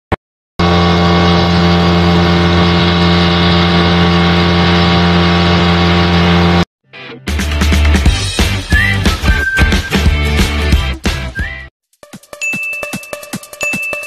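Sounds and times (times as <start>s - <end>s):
outboard motor running: 0.6s - 6.7s.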